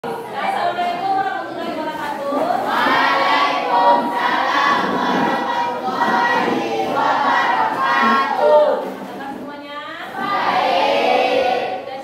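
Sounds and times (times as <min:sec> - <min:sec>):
students chanting in unison: 0:02.6 - 0:08.8, 0:10.1 - 0:12.0.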